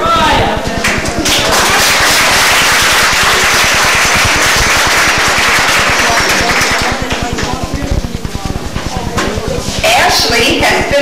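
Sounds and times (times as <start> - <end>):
audience applauding: 0.8 - 7.3.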